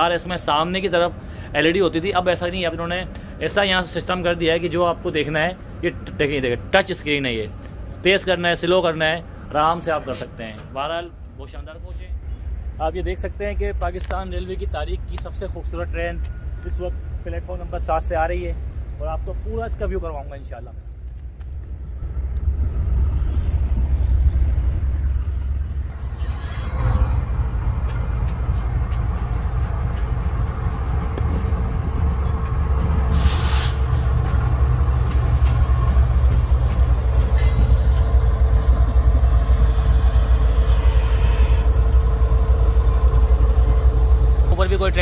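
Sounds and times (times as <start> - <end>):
diesel locomotive engine rumble: 0.0 - 45.0
air hiss: 33.1 - 34.1.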